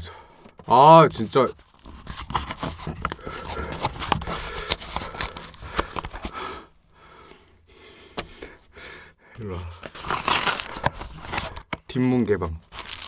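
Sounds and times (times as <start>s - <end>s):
paperboard carton crinkling: 1.1s - 6.4s, 9.7s - 13.0s.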